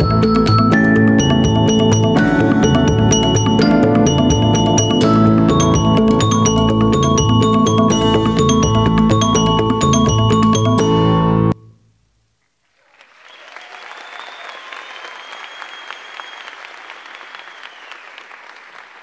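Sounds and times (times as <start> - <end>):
dance music with mallet notes: 0.0 - 11.6
audience applause: 12.8 - 19.0.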